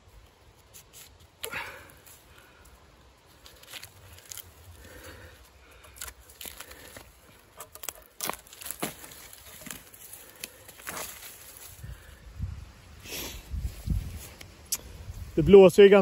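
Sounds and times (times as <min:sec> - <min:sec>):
bark crackling and tearing: 0:03.3 - 0:11.8.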